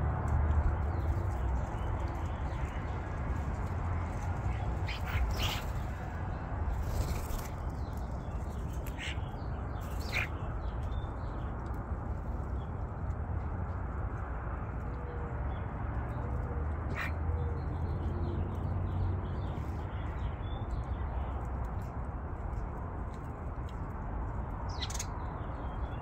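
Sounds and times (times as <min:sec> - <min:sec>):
starlings giving harsh calls: 0:04.5 - 0:06.1, 0:08.8 - 0:10.4, 0:16.9 - 0:17.2, 0:24.7 - 0:25.1.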